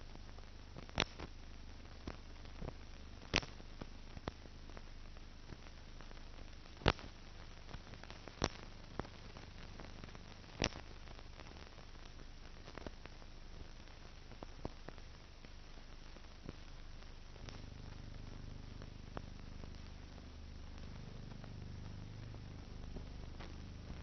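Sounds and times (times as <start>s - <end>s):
steady hiss: 0.0s - 24.0s
film surface clicks and pops: 0.8s - 1.3s, 2.0s - 3.6s, 6.8s - 7.2s, 8.4s - 9.2s, 10.5s - 10.9s, 17.4s - 18.0s
low hum: 17.4s - 24.0s.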